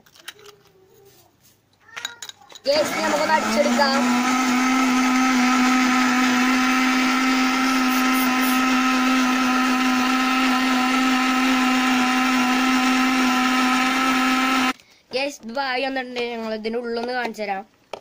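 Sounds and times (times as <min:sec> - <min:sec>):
mixer grinder motor whine: 0:02.7 - 0:14.8.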